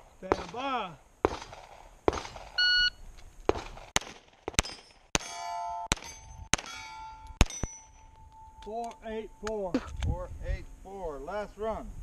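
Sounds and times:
pistol shots: 0.2 - 2.6, 3.5 - 7.8
steel plates ringing: 4.6 - 9.5.

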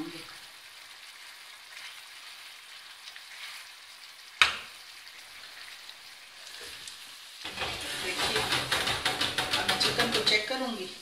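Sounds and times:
chicken sizzling in a pan: 0.0 - 11.0.

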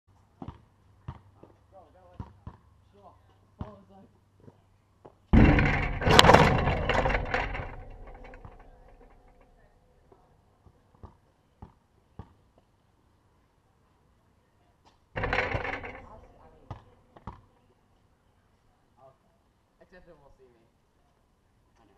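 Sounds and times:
basketball hitting hoop: 5.4 - 9.4, 15.2 - 16.9
backboard and rim rattling ring: 5.4 - 9.8, 15.2 - 16.9.

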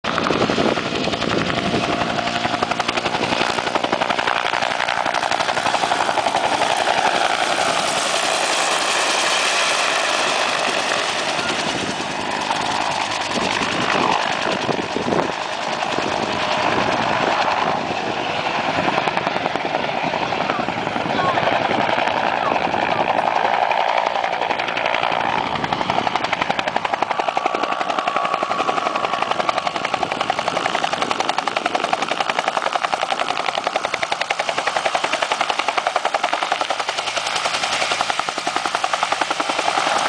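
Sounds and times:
helicopter rotor beating: 0.0 - 40.0
turbine engine noise: 0.1 - 40.0.

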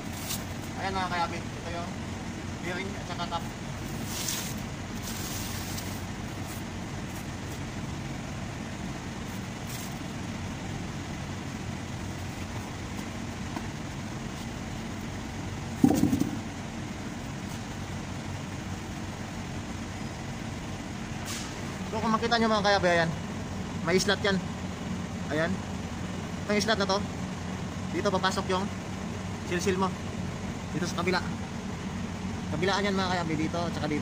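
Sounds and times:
low mechanical hum: 0.0 - 34.0
loud knock: 15.8 - 16.6.

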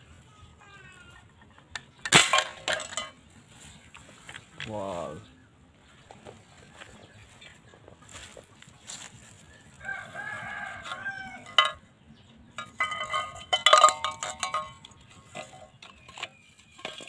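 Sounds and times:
tin cans knocking and clinking: 1.2 - 3.2, 10.9 - 11.9, 12.6 - 17.0
rooster crowing: 9.6 - 11.8.

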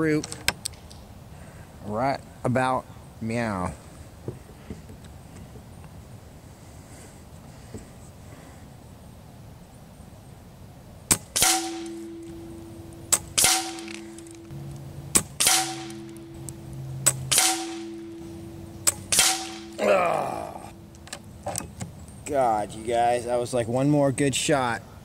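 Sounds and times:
air rifle shots: 11.1 - 12.2, 13.1 - 14.4, 15.1 - 18.2, 18.8 - 19.8.

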